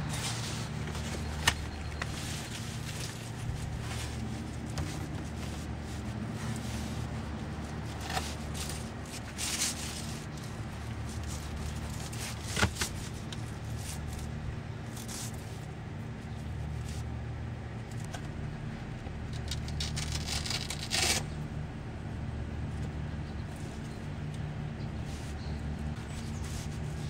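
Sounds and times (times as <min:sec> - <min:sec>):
scraping rustle: 0:00.0 - 0:15.7, 0:25.0 - 0:27.0.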